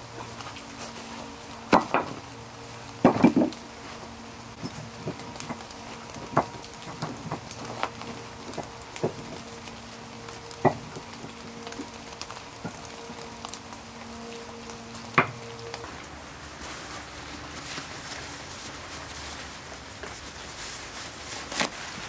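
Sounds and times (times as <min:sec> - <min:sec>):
faint steady hum: 0:00.0 - 0:22.0
firewood knocking together: 0:01.7 - 0:02.2, 0:03.0 - 0:03.7, 0:04.6 - 0:09.6, 0:10.6 - 0:11.9, 0:15.2 - 0:15.9.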